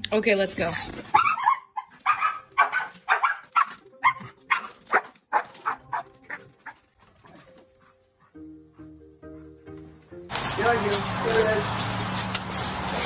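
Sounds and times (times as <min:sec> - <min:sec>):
dog barking: 0:01.1 - 0:06.8.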